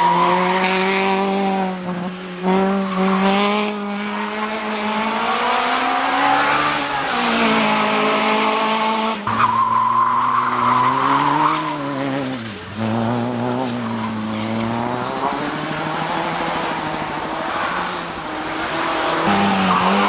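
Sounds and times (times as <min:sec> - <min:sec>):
racing car engines at high revs: 0:00.0 - 0:20.0.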